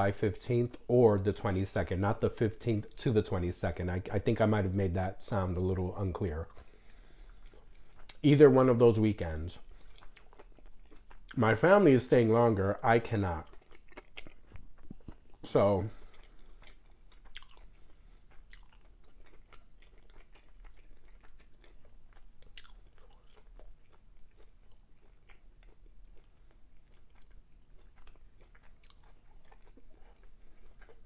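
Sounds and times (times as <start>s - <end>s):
person chewing food: 6.4s - 8.2s, 9.2s - 11.6s, 13.0s - 31.0s.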